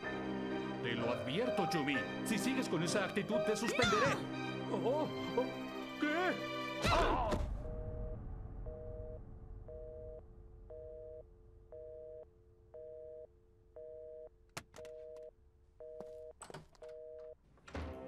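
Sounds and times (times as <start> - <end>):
telephone busy signal beeps: 7.7 - 12.2
faint steady hum: 7.7 - 17.4.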